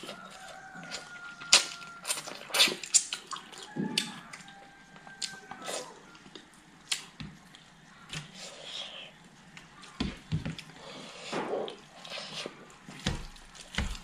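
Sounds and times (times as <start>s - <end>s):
chewing and sucking: 0.0s - 7.7s.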